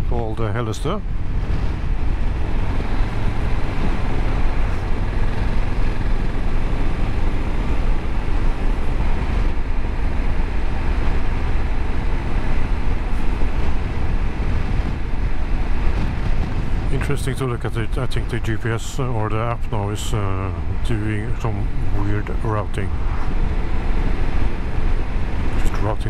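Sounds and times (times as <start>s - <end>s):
wind and road noise: 0.0s - 26.0s
motorcycle engine running: 1.0s - 16.9s.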